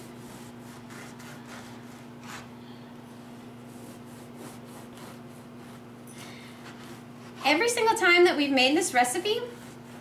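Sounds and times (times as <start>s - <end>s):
knife sawing through bread: 0.0s - 2.5s, 3.6s - 6.0s, 9.3s - 10.0s
steady low hum: 0.0s - 10.0s.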